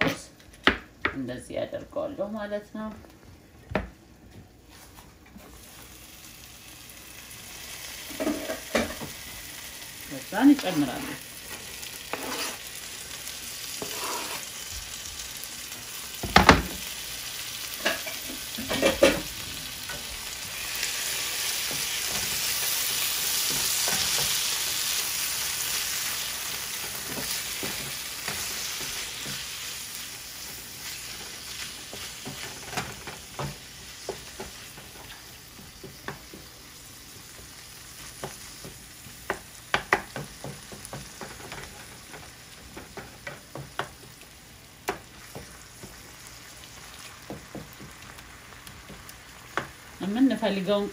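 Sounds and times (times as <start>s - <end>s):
tofu sizzling in a pan: 5.4s - 50.9s
wooden spatula scraping a pan: 10.6s - 12.7s, 13.8s - 14.6s.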